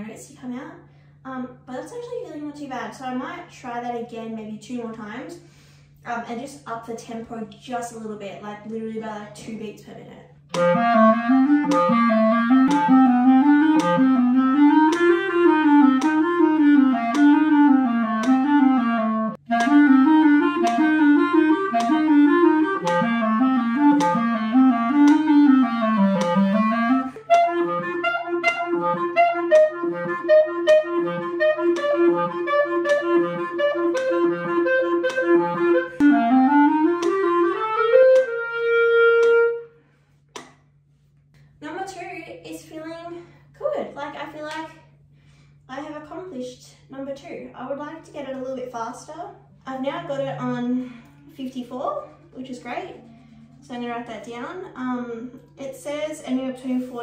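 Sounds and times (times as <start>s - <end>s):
metronome clicking: 10.5s - 39.5s
clarinet playing scales: 10.5s - 39.8s.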